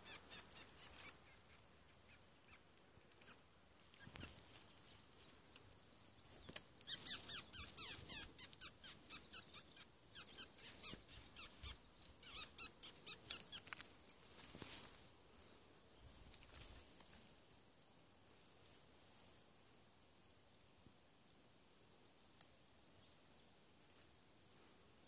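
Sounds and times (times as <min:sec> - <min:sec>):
mouse squeaking in distress: 0:00.0 - 0:01.5, 0:03.2 - 0:04.4, 0:06.8 - 0:13.7.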